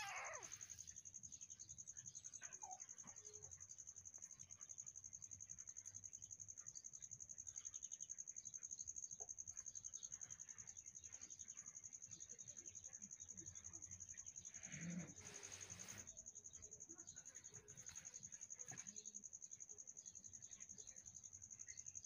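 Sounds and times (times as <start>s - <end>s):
kitten meowing: 0.0s - 0.5s
faint high insect trill: 0.0s - 22.0s.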